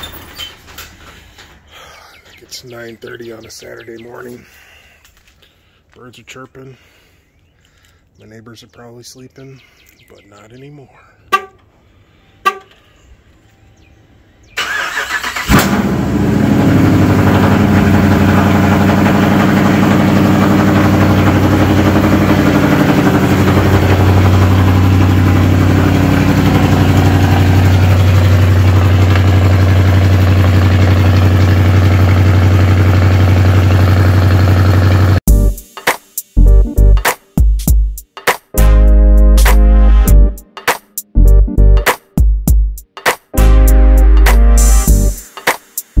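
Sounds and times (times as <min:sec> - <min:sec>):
car starter cranking: 0:14.6 - 0:16.0
car engine idling: 0:14.7 - 0:35.2.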